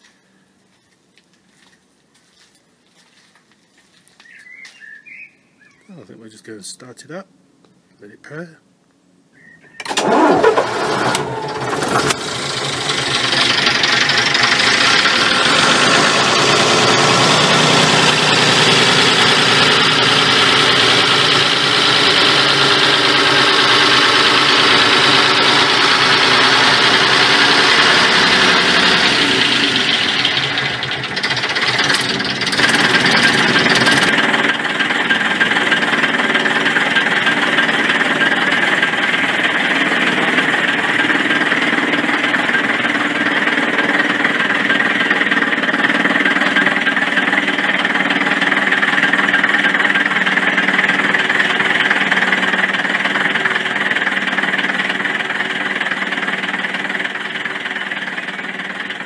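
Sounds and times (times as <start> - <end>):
diesel engine starting and idling: 9.7 - 59.0.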